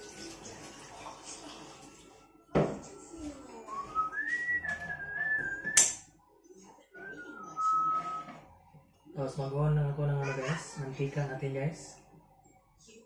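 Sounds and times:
person whistling: 3.7 - 5.9.

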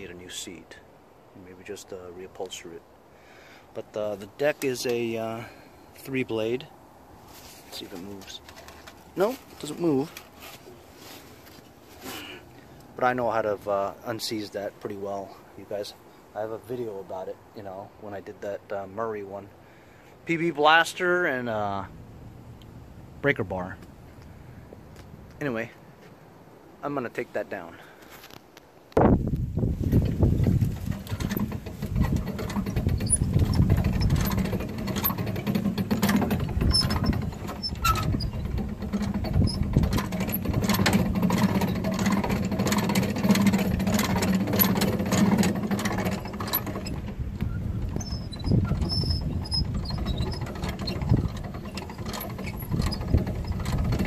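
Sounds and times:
clicks and rattles: 29.9 - 54.0
winch humming: 30.8 - 54.0.

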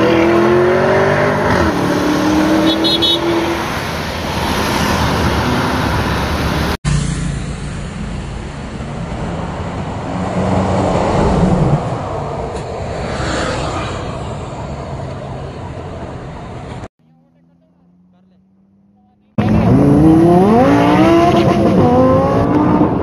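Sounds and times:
passing cars and motorbikes: 0.0 - 23.0.

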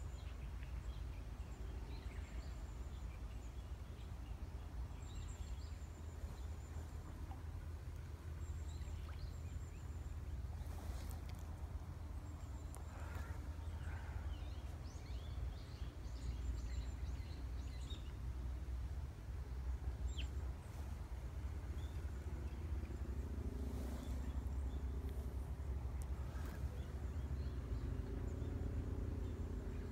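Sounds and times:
low wind rumble on microphone: 8.4 - 29.9.

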